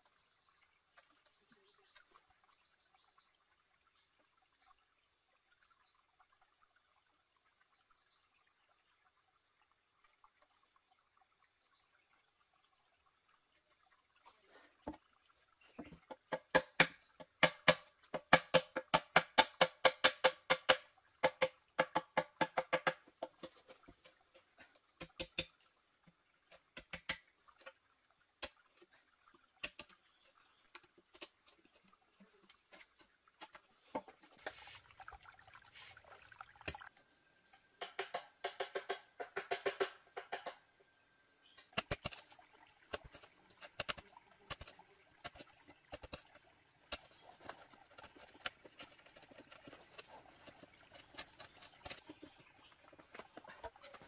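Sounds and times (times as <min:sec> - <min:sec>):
knife chopping bamboo: 0:16.3 - 0:23.5, 0:42.9 - 0:52.4.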